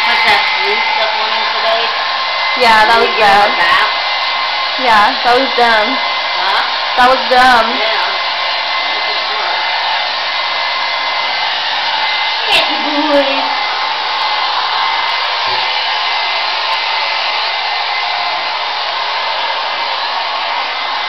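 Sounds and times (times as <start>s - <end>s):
hair dryer running: 0.0s - 21.0s.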